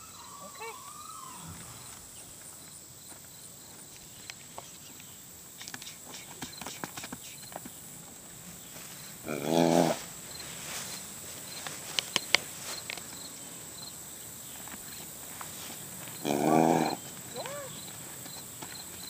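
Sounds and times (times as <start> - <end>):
loud pitched animal call: 0.0 - 2.1, 16.2 - 17.8.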